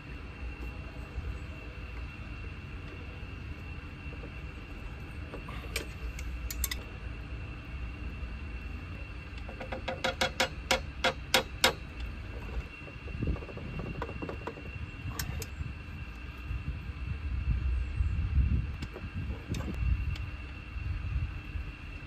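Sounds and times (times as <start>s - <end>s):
steady high whine: 0.0s - 22.0s
wrench clicking on pipe fittings: 5.7s - 6.9s, 9.4s - 12.1s.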